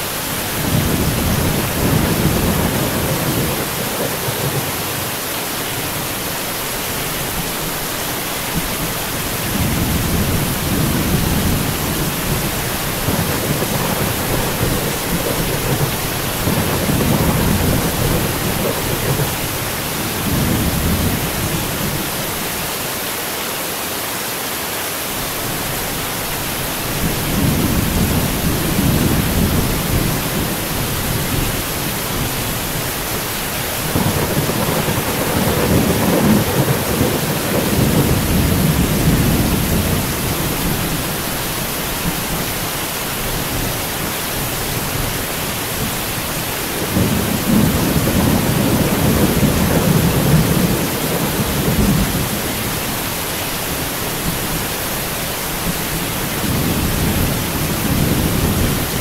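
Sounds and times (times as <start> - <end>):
rain hissing: 0.0 - 59.0
rolling thunder: 0.5 - 5.2, 8.6 - 22.2, 26.9 - 41.3, 45.8 - 52.9, 55.6 - 59.0.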